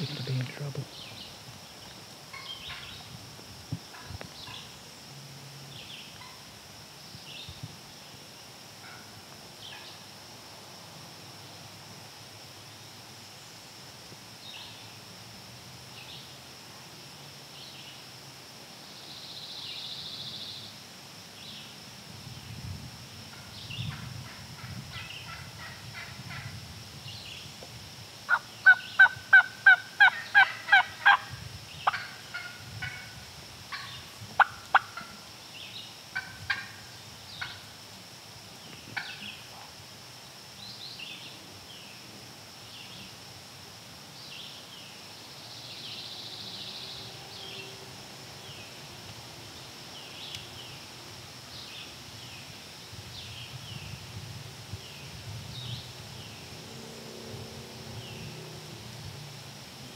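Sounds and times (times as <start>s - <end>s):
songbirds chirping: 0.0s - 3.2s, 3.8s - 9.0s, 27.0s - 32.6s, 38.5s - 43.2s, 44.1s - 54.1s, 54.7s - 59.0s
turkey yelping: 28.3s - 31.2s.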